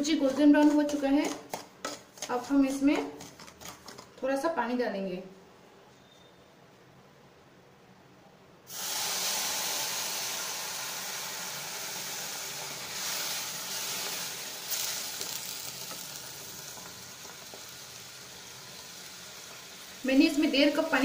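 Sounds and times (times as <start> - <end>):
water sizzling in hot pan: 8.7 - 21.0.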